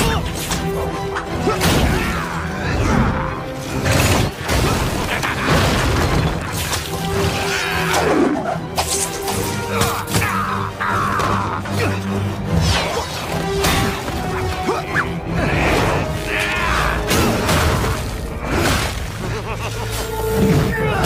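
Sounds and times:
dramatic action music: 0:00.0 - 0:21.0
crashes of breaking stone: 0:03.8 - 0:07.5.

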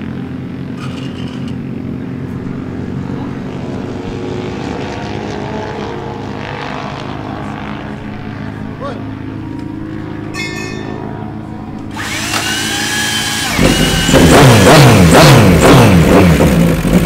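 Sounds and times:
motorcycle engine idling: 0:00.0 - 0:04.0.

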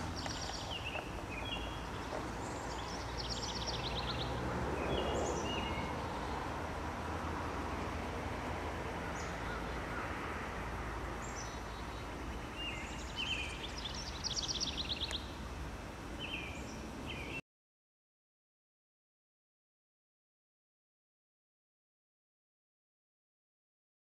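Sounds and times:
birds chirping: 0:00.0 - 0:17.4
outdoor background hiss: 0:00.0 - 0:17.4.

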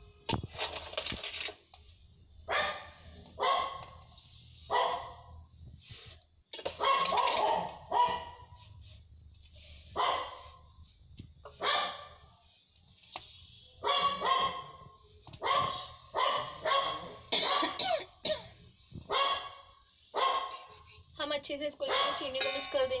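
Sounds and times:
dog barking: 0:02.5 - 0:03.8, 0:04.7 - 0:05.3, 0:06.8 - 0:08.5, 0:10.0 - 0:10.5, 0:11.6 - 0:12.2, 0:13.8 - 0:17.8, 0:19.1 - 0:20.7, 0:21.8 - 0:22.3.

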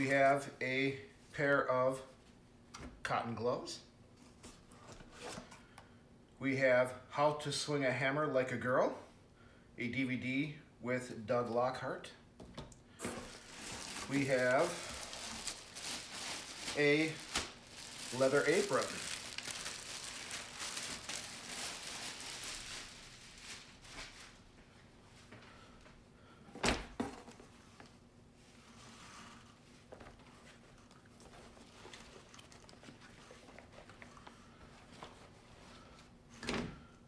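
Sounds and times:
plastic packaging crinkling: 0:13.1 - 0:24.5
leather rustling: 0:13.2 - 0:24.3.

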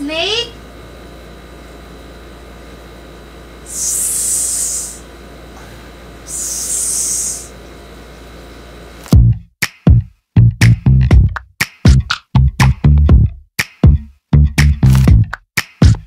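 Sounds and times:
woman imitating snake hiss: 0:03.6 - 0:05.1, 0:06.3 - 0:07.6
music with drum-machine beat: 0:09.1 - 0:16.0.

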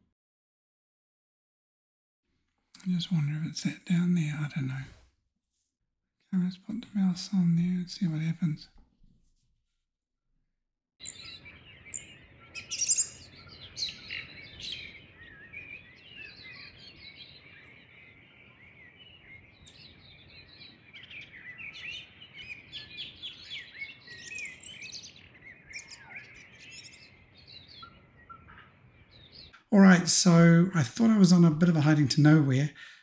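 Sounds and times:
birds chirping and singing: 0:11.0 - 0:32.7.

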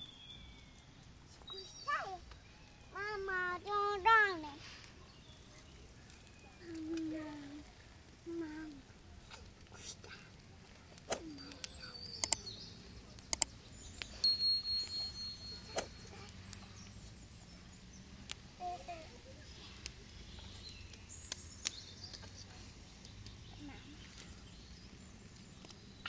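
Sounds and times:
faint bird chirps: 0:00.0 - 0:04.0, 0:11.1 - 0:26.0
sharp clicks: 0:10.4 - 0:12.6, 0:13.2 - 0:14.2.

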